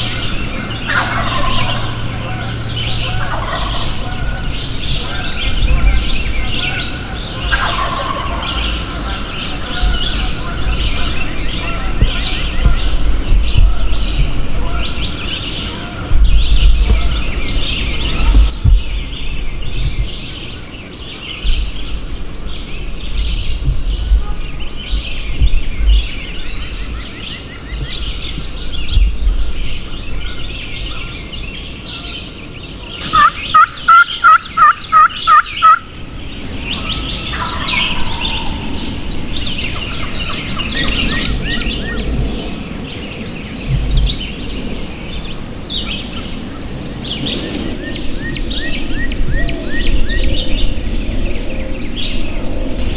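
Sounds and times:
wild turkey calling: 0:00.0 - 0:19.2, 0:32.8 - 0:42.3
songbirds chirping: 0:00.0 - 0:52.9.

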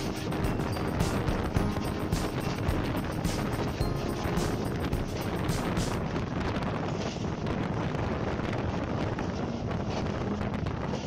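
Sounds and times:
wind rushing across microphone: 0:00.0 - 0:11.0.

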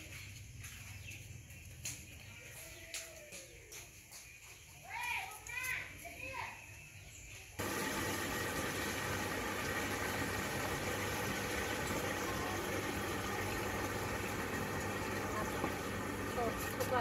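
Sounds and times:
water pump humming: 0:07.6 - 0:17.0
water rushing into a basin: 0:07.6 - 0:17.0.

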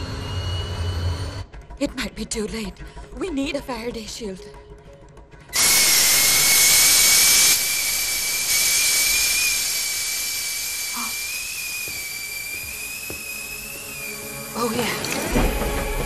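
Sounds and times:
pressure cooker whistling: 0:05.6 - 0:15.0
steam hissing: 0:05.6 - 0:16.0.

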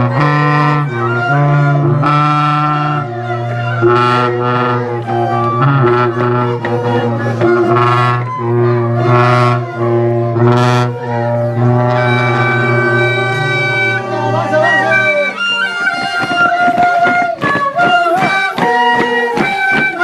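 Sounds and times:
steady low drone: 0:00.0 - 0:15.4
wind players on pipes and flutes: 0:00.0 - 0:20.0.

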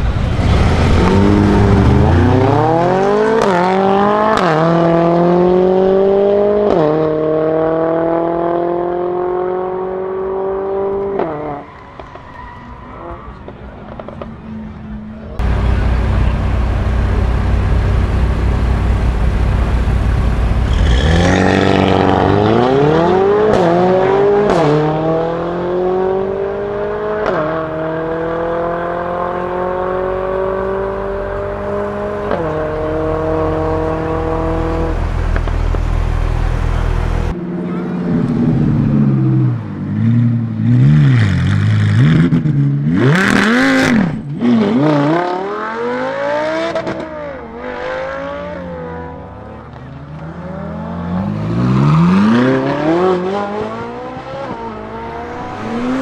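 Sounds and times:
sports car revving: 0:00.0 - 0:12.2, 0:13.0 - 0:56.0
cars accelerating through gears: 0:00.3 - 0:12.2, 0:20.6 - 0:35.8, 0:36.7 - 0:56.0
exhaust crack: 0:31.4 - 0:42.6.

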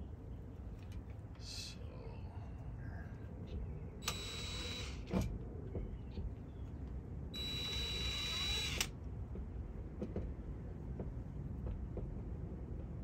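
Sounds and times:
cordless drill whining on metal: 0:04.0 - 0:05.3, 0:07.4 - 0:08.9.

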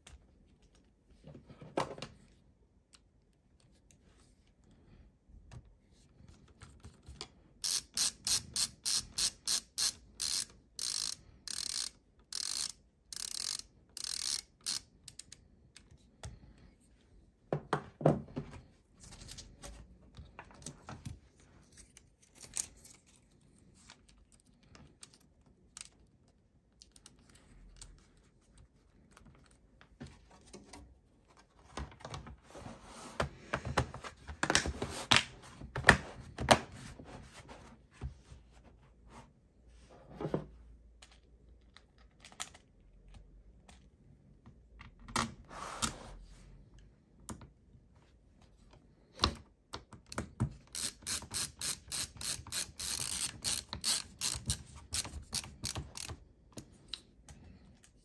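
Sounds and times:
ratcheting screwdriver clicking: 0:07.6 - 0:15.4, 0:50.7 - 0:56.2.

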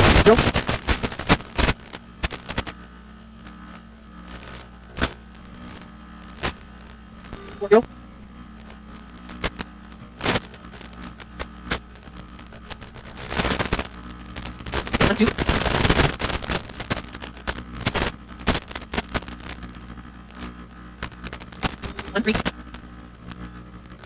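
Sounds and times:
steady hum: 0:00.0 - 0:00.6, 0:07.3 - 0:07.9, 0:14.6 - 0:15.6, 0:21.8 - 0:22.5
static crackles: 0:00.0 - 0:02.8, 0:03.4 - 0:07.9, 0:08.6 - 0:24.0.

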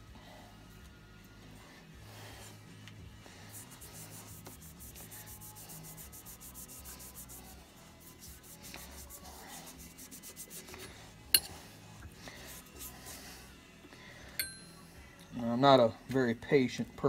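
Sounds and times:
pad rubbing metal part: 0:03.5 - 0:11.6.

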